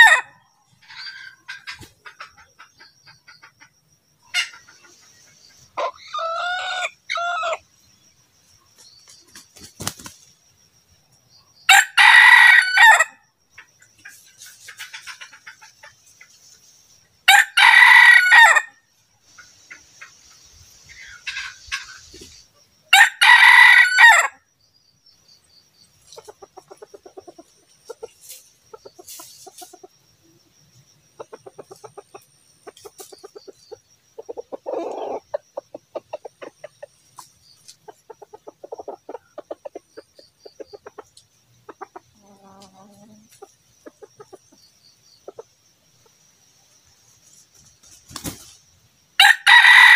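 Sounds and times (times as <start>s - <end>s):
rooster crowing: 5.8s - 7.6s, 11.7s - 13.2s, 17.3s - 18.8s, 22.9s - 24.4s, 49.2s - 49.9s.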